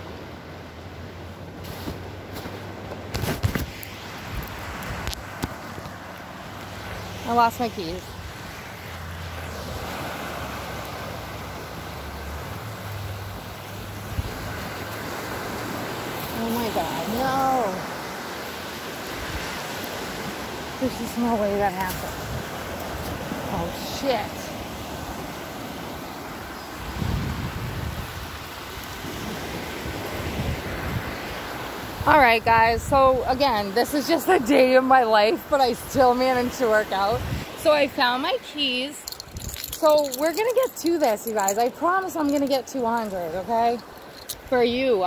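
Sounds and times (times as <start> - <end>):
waves washing on beach: 0.0 - 45.0
wind rumbling on microphone: 19.0 - 33.7, 35.6 - 37.7, 39.0 - 44.8.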